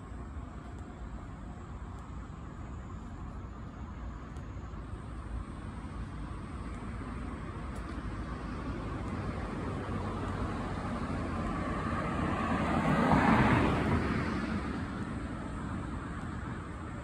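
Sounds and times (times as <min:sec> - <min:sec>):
vehicle tyre and road noise: 0:00.0 - 0:17.0.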